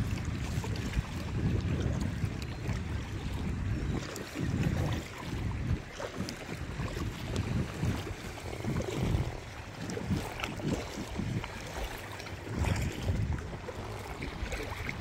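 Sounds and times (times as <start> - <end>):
water splashing around kayak: 0.0 - 15.0
wind gusting on microphone: 0.0 - 15.0.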